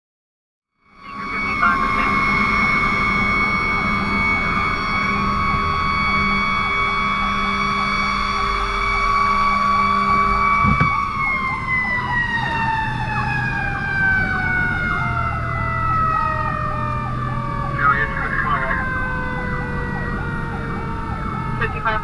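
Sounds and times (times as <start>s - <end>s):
electronic siren wailing: 0.8s - 22.0s
mechanical siren screaming: 0.8s - 22.0s
brief thump: 10.6s - 11.0s.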